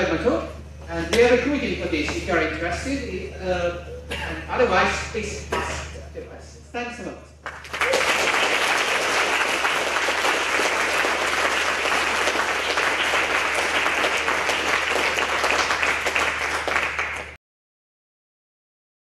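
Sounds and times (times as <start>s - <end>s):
audience applauding: 7.4s - 17.4s.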